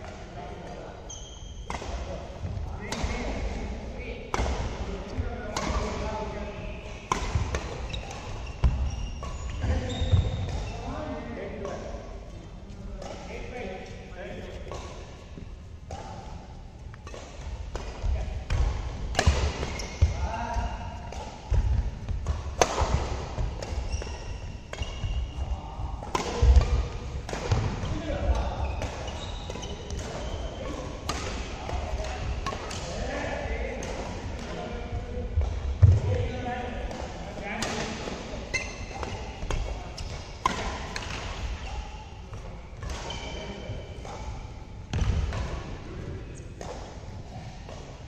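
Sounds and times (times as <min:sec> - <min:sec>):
racket striking shuttlecock: 0:04.3 - 0:04.8, 0:05.5 - 0:06.0, 0:17.0 - 0:25.1, 0:26.0 - 0:33.0, 0:36.9 - 0:41.7.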